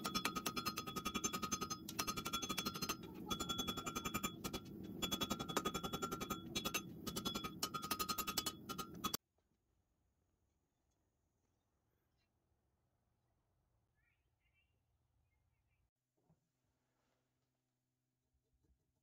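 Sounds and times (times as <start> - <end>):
hammer striking steel on anvil: 0.0 - 9.2.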